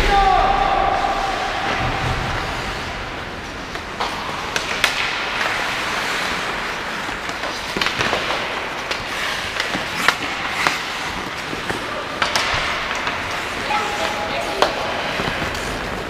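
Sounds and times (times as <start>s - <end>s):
skates scraping across ice: 1.2s - 16.0s
sticks clacking on puck: 3.4s - 16.0s.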